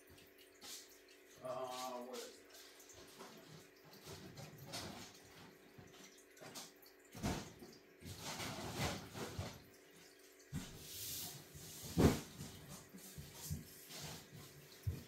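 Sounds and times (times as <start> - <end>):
handling rustles and knocks: 10.5 - 15.0.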